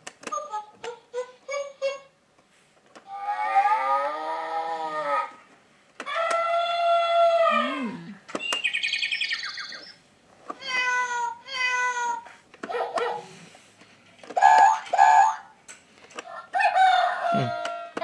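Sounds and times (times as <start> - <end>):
toy piano sound effects: 14.4 - 15.5.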